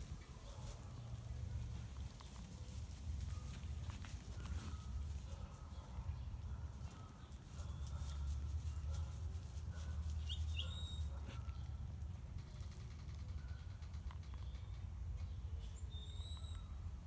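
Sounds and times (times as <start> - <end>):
dry leaves crackling underfoot: 0.0 - 5.6, 6.3 - 12.2
bird chirps: 10.2 - 11.7, 13.4 - 17.0.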